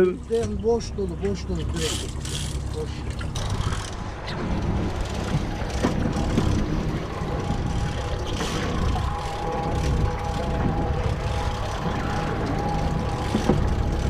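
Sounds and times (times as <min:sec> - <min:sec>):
boat engine running: 0:00.0 - 0:14.0
water noise: 0:00.0 - 0:14.0
wind: 0:00.0 - 0:14.0
high-pitched whine: 0:04.2 - 0:14.0.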